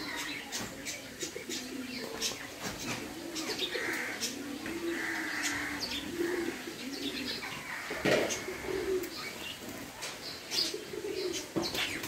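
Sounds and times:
low wavering cooing: 0:03.1 - 0:07.6, 0:08.4 - 0:09.3.

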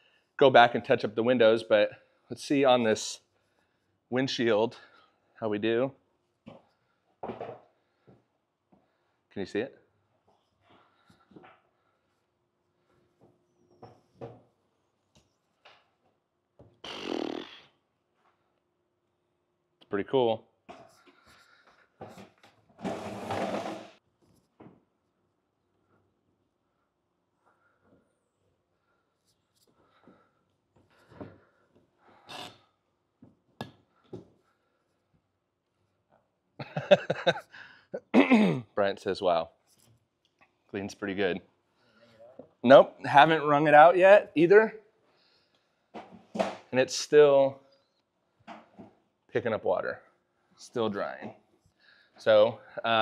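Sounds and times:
man speaking: 0:00.4 - 0:03.2, 0:40.8 - 0:41.4, 0:42.6 - 0:44.8, 0:46.8 - 0:47.6, 0:50.6 - 0:51.3, 0:52.2 - 0:53.0.

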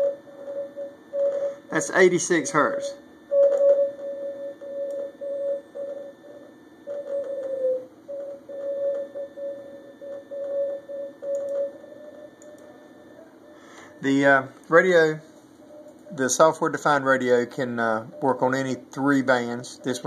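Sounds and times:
morse code tone: 0:00.0 - 0:15.1.

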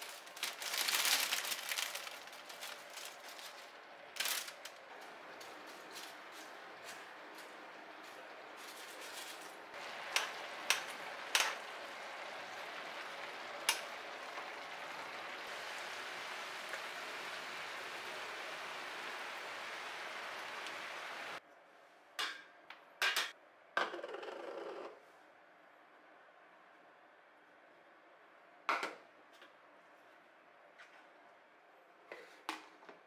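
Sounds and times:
food sizzling in a frying pan: 0:09.7 - 0:21.4.

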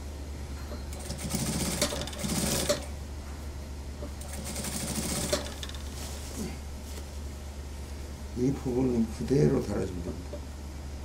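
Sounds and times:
sewing machine stitching: 0:00.9 - 0:02.9, 0:04.2 - 0:05.8.

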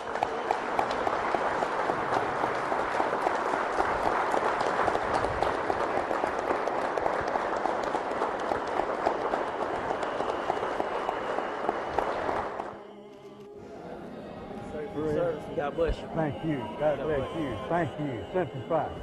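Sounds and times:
crowd applauding: 0:00.0 - 0:13.5.

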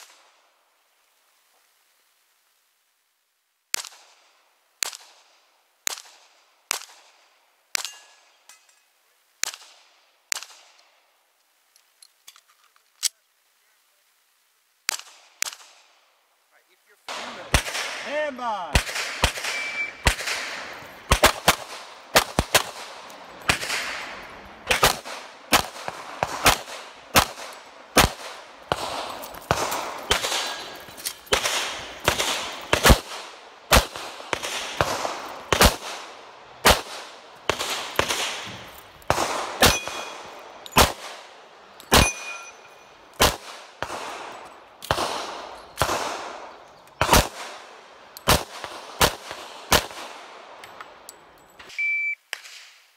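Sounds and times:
pistol shots with echo: 0:17.1 - 0:50.6.

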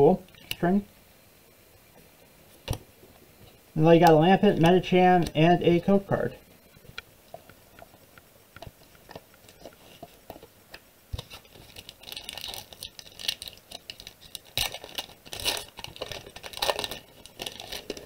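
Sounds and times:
foil wrapper crinkling and tearing: 0:11.1 - 0:18.0.

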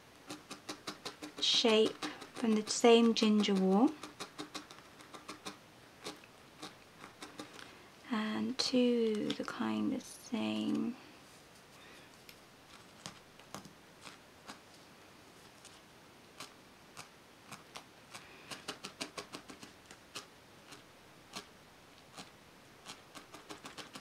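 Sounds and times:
felting needle clicking into foam: 0:00.2 - 0:06.2, 0:16.4 - 0:21.5.

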